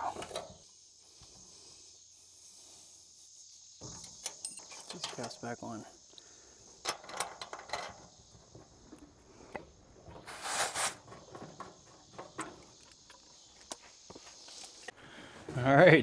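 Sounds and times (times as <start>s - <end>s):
short gas hiss: 10.2s - 11.0s.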